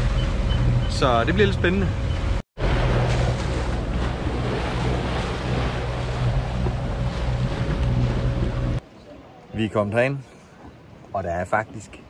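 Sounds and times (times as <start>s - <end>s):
steady low drone: 2.6s - 8.8s
water washing along hull: 2.6s - 8.8s.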